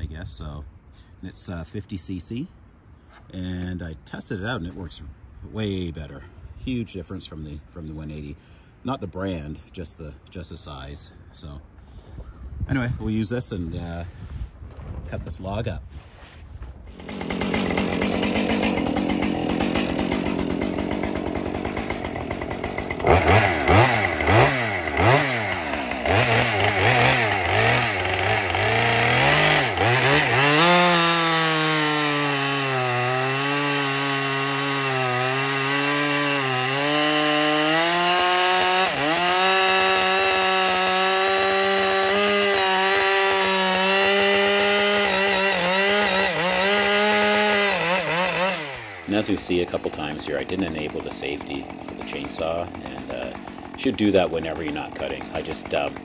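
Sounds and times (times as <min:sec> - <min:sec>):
chainsaw revving and cutting log: 0:16.9 - 0:56.0.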